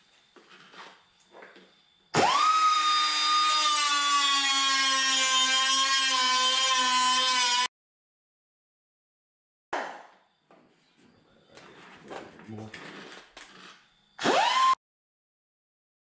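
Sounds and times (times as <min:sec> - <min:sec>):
cut-off tool whining through sheet metal: 0:02.2 - 0:07.7, 0:13.4 - 0:14.8.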